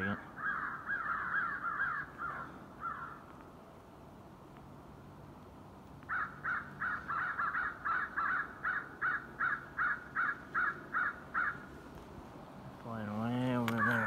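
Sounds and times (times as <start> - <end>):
electronic crow caws: 0.4 - 3.3, 6.0 - 11.7, 13.6 - 14.0.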